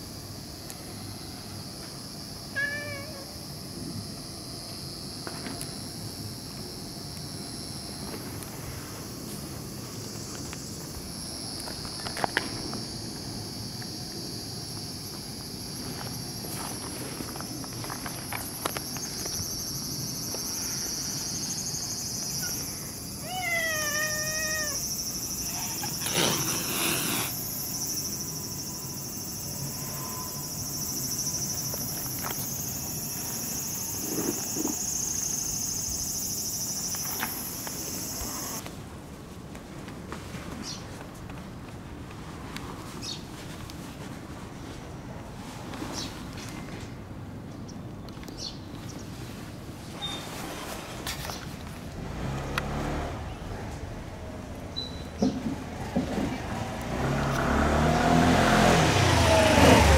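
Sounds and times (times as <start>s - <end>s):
insects chirring: 0.0s - 38.6s
cat yowling: 2.5s - 3.4s, 23.2s - 26.7s
cat hissing: 2.6s - 3.3s, 23.2s - 27.4s.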